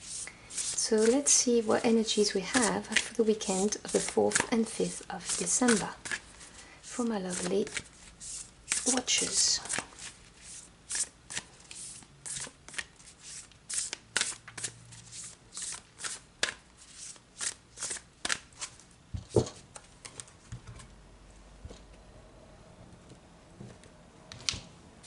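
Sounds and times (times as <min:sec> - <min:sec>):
cards being shuffled: 0:00.1 - 0:01.4, 0:02.5 - 0:06.5, 0:07.3 - 0:18.8.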